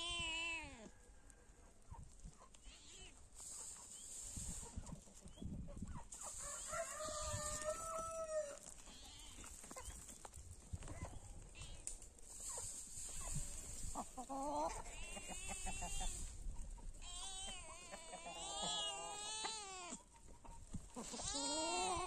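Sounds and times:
rooster crowing: 6.4s - 8.6s.

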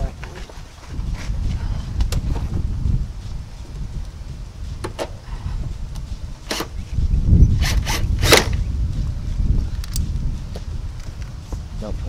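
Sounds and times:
low rumble: 0.8s - 12.0s
hand ratchet zipping: 6.4s - 6.9s, 7.6s - 8.6s.

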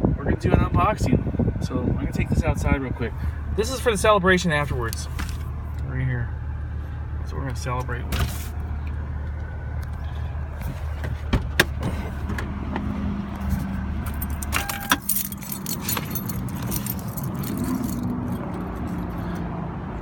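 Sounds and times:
car engine idling: 0.4s - 20.0s
keys jingling: 14.0s - 19.2s
brief beep: 14.6s - 15.0s.

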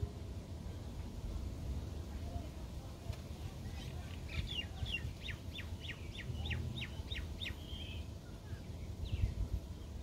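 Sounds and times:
songbird whistling: 3.7s - 9.4s.

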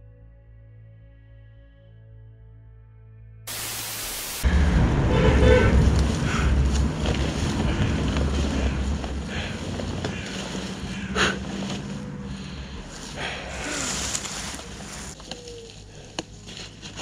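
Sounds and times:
static hiss: 3.5s - 4.5s.

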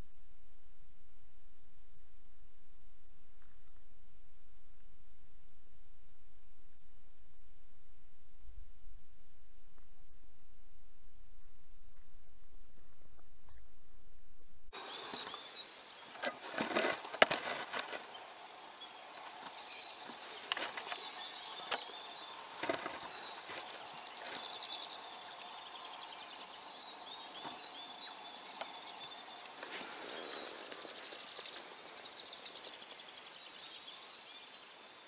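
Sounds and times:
small birds chirping and trilling: 14.8s - 35.0s.

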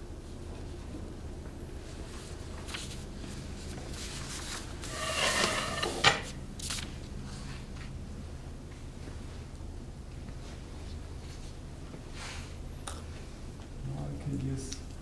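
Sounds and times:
paper sheet rustling: 2.1s - 5.8s.

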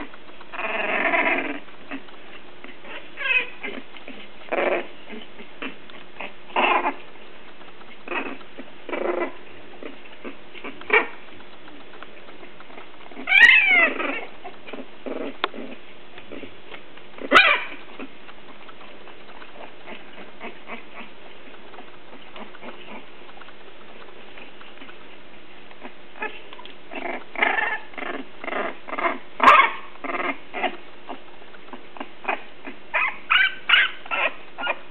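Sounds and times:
puppies whimpering and squealing: 0.0s - 34.9s
puppy yelps and cries: 2.8s - 3.8s, 13.2s - 14.8s, 17.2s - 18.1s, 29.0s - 31.2s, 32.2s - 34.9s.

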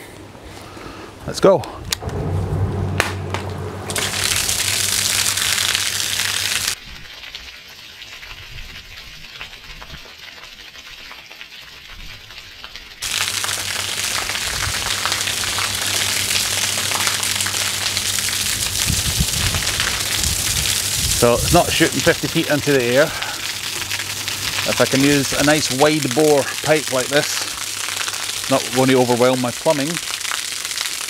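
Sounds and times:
sump pump humming: 2.0s - 6.8s, 13.0s - 29.1s
water splashing onto paving: 3.9s - 31.0s.

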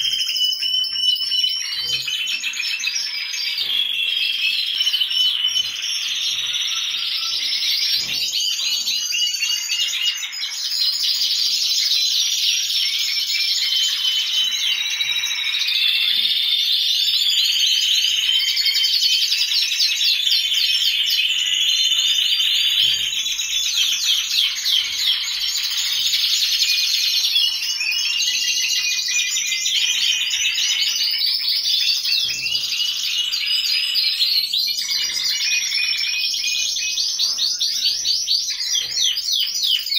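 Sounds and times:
canaries singing: 0.0s - 39.9s.

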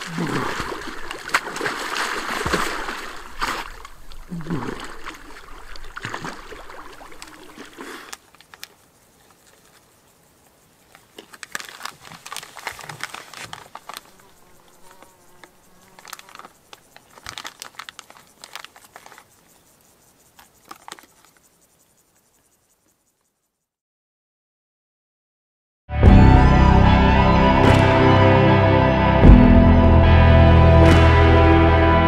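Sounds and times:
water splashing: 0.0s - 22.1s
insect buzzing: 0.0s - 23.8s
food packaging crinkling: 7.1s - 8.8s, 10.9s - 15.1s, 15.8s - 19.4s, 20.4s - 21.3s.

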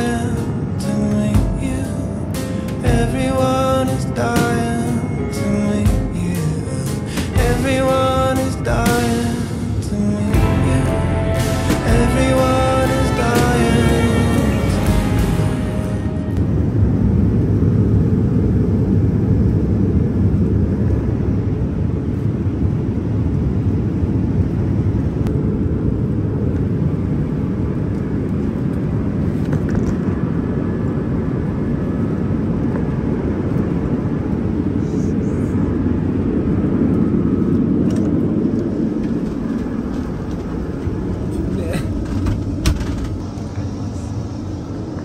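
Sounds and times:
airliner cabin engine rumble: 0.0s - 45.0s.

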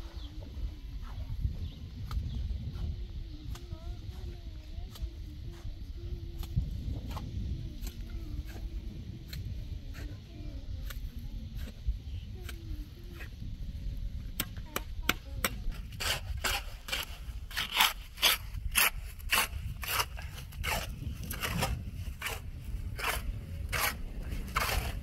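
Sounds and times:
scraping strokes: 15.7s - 25.0s.

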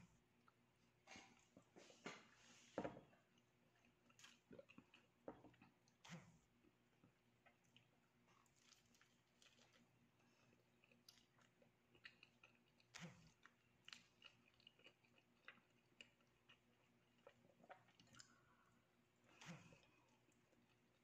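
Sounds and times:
mouth chewing clicks and smacks: 10.5s - 18.4s.

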